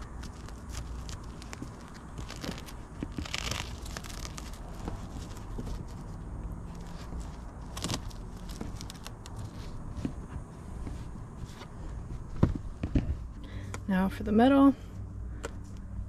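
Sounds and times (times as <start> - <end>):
velcro rasp: 0.0 - 9.8
fabric curtain rustling: 0.0 - 9.9.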